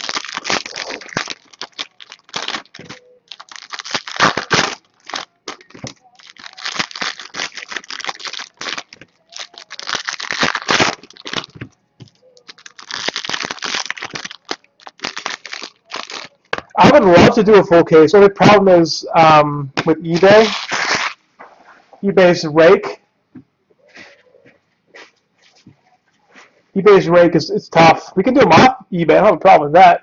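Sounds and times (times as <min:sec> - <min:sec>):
foil wrappers crinkling and tearing: 0:00.0 - 0:16.7, 0:20.1 - 0:21.2.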